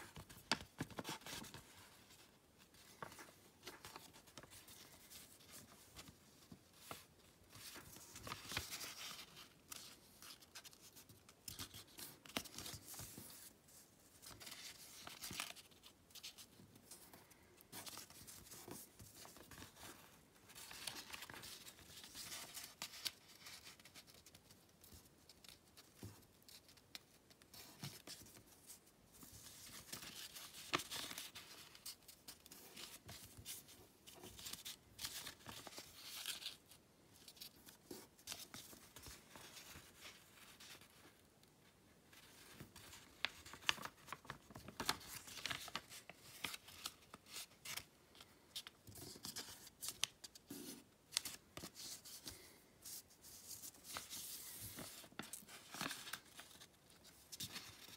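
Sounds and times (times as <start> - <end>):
paper rustling and crinkling: 0.0 - 41.3, 42.1 - 57.9
sharp paper crackles: 42.6 - 47.9.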